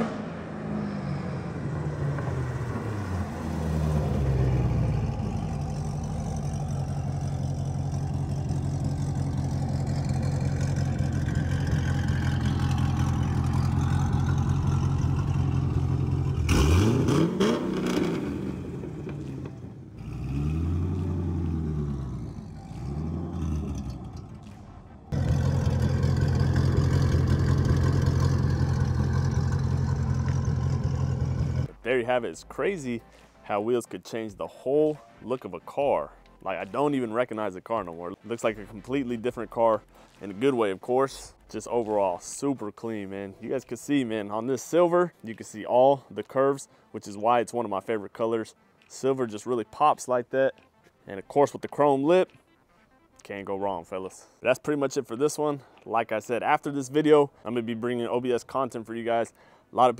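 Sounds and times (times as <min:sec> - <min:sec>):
engine revving: 0:00.0 - 0:31.8
car engine idling: 0:00.1 - 0:16.9, 0:18.3 - 0:31.8.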